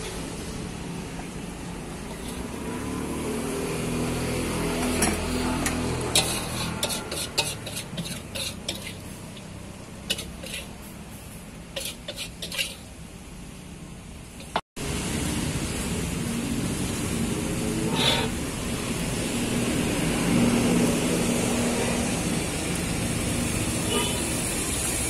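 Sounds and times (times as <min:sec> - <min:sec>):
metal ladle scraping a wok: 0:02.0 - 0:02.9, 0:04.7 - 0:12.9, 0:17.7 - 0:18.4.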